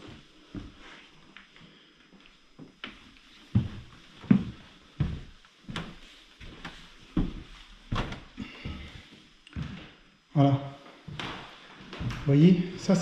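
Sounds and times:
footsteps on wooden floorboards: 2.6 - 10.0, 11.1 - 12.3.

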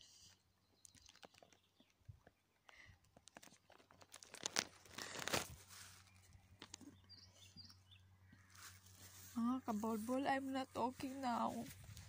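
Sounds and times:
rustling and crinkling: 0.0 - 12.0
small birds chirping: 0.0 - 12.0.

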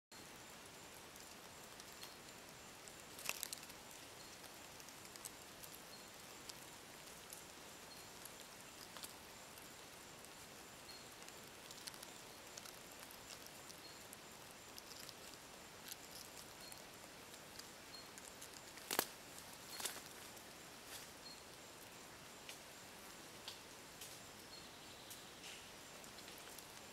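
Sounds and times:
small ticks: 0.2 - 26.9
steady hiss: 0.2 - 26.9
brief crackle: 14.7 - 20.4.

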